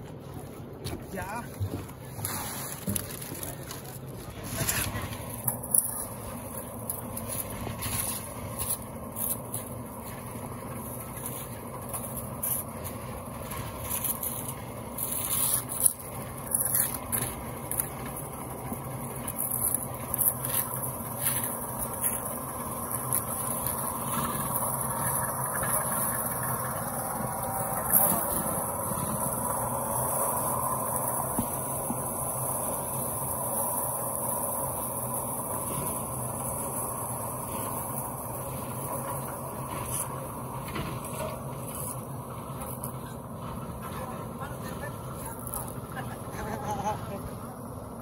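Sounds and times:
engine hum: 0:00.0 - 0:48.0
shovels scraping wet concrete: 0:02.0 - 0:06.4, 0:07.2 - 0:10.2, 0:11.1 - 0:26.4.

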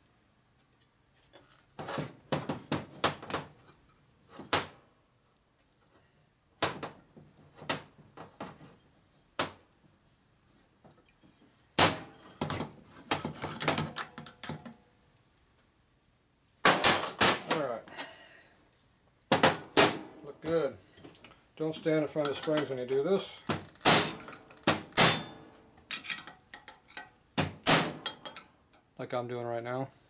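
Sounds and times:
metal parts and tools clicking: 0:25.9 - 0:27.1, 0:28.0 - 0:28.5.

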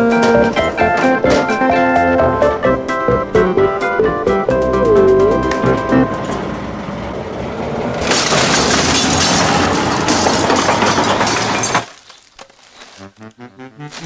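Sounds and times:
light music: 0:00.0 - 0:06.5, 0:12.8 - 0:14.0
rubbish crashing from truck: 0:07.8 - 0:13.2
glass breaking: 0:08.0 - 0:13.1.

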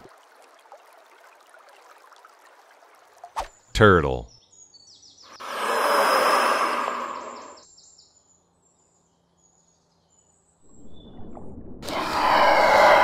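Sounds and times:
birds chirping: 0:03.5 - 0:11.2.

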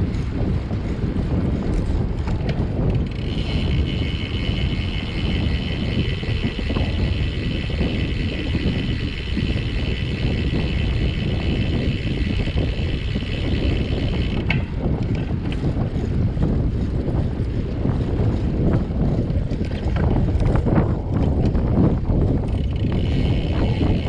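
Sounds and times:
wind buffeting microphone: 0:00.0 - 0:24.0
high steady whine: 0:03.0 - 0:14.7.

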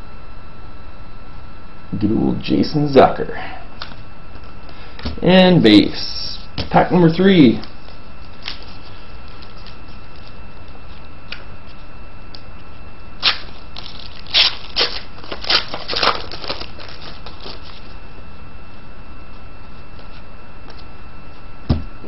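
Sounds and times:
faint steady hum: 0:00.0 - 0:22.0
foil wrapper tearing and crinkling: 0:08.3 - 0:11.4, 0:13.2 - 0:17.9.

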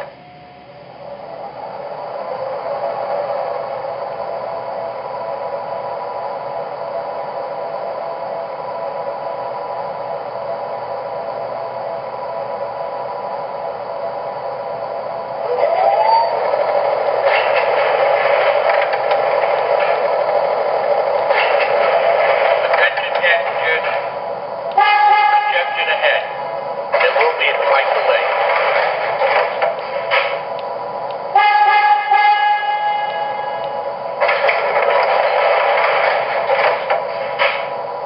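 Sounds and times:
rising whine: 0:00.0 - 0:22.8
steady electric hum: 0:00.0 - 0:38.0.

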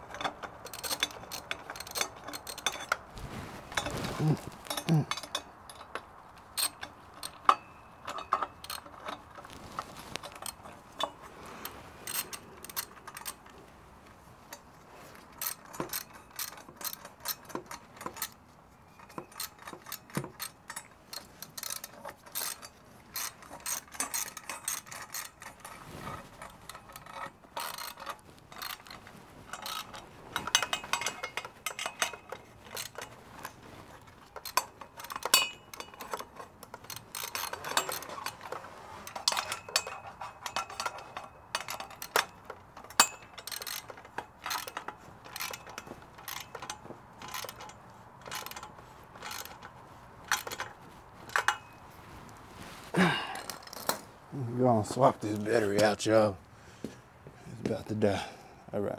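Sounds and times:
metal tools clinking: 0:00.0 - 0:54.2
hand ratchet clicking: 0:00.1 - 0:03.0, 0:12.0 - 0:13.5, 0:15.4 - 0:18.4, 0:19.0 - 0:25.8, 0:26.4 - 0:33.1, 0:34.1 - 0:51.7.

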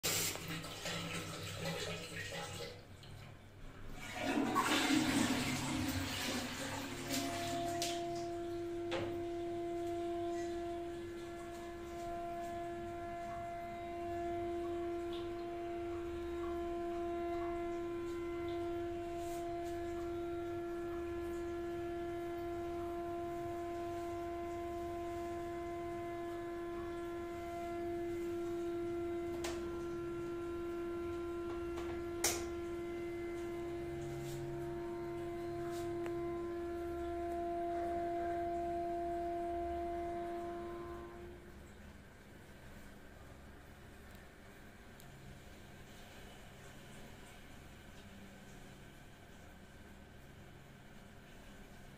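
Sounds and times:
loud humming drone: 0:05.0 - 0:41.8.

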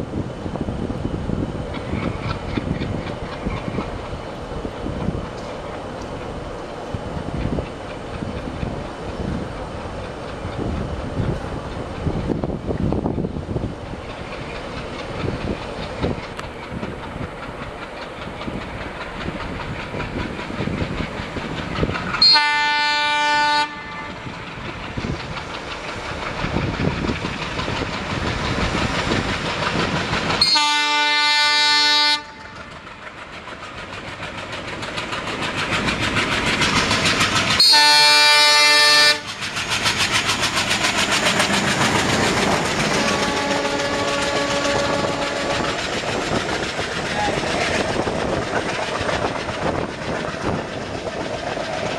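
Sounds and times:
diesel locomotive engine: 0:00.0 - 0:51.9
train wheels on rails: 0:00.0 - 0:51.9
locomotive horn blasts: 0:22.2 - 0:24.2, 0:30.4 - 0:32.6, 0:37.6 - 0:39.2, 0:43.0 - 0:45.6.

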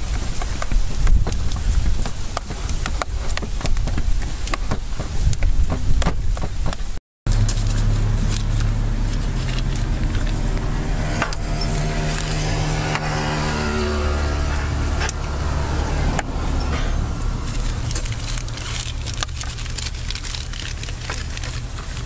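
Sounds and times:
engine running: 0:07.3 - 0:22.0.

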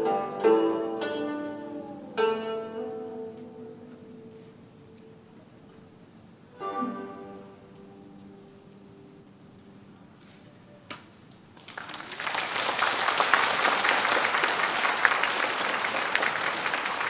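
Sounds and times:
audience applause: 0:11.6 - 0:17.0.

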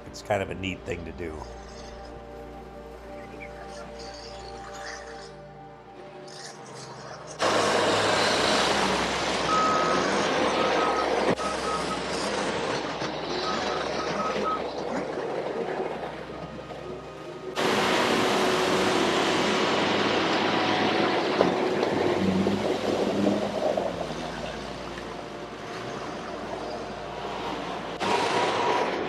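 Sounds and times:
tyres churning water: 0:07.4 - 0:29.0.

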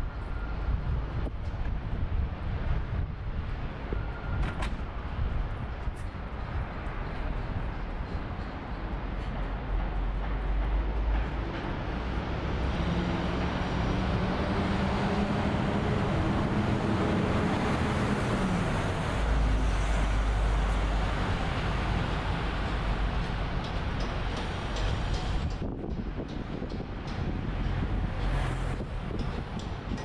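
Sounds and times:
city street traffic: 0:00.0 - 0:30.0
wind rumble on microphone: 0:00.0 - 0:30.0
passing vehicle engine hum: 0:08.6 - 0:25.4.

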